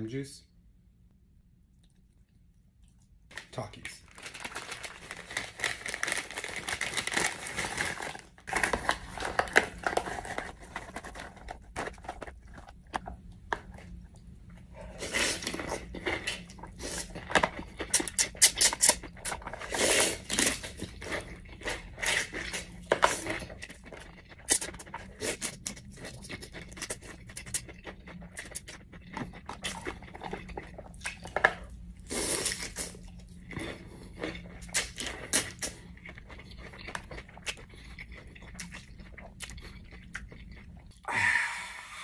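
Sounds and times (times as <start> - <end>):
noodles slurped and chewed: 32.0 - 41.1.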